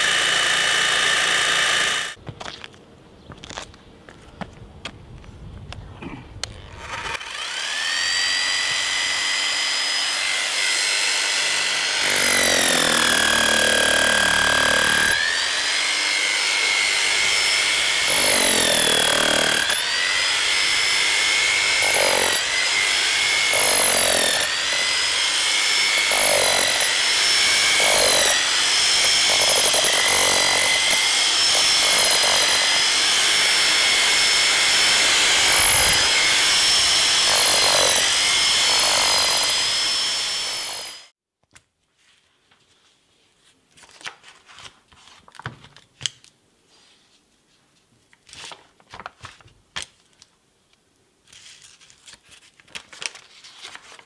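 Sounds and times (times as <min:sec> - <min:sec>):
demolition hammer motor whine: 0:00.0 - 0:02.2, 0:06.8 - 0:41.1
chisel hammering concrete: 0:18.1 - 0:19.8, 0:23.5 - 0:24.5, 0:26.0 - 0:26.9.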